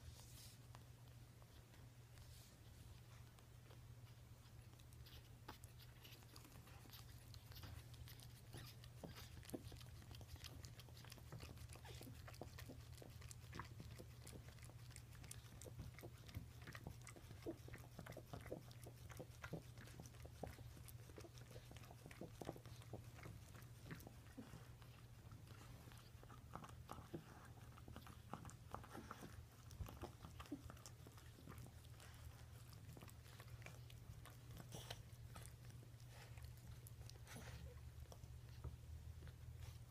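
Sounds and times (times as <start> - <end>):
puppies suckling wet clicking: 0.7 - 39.9.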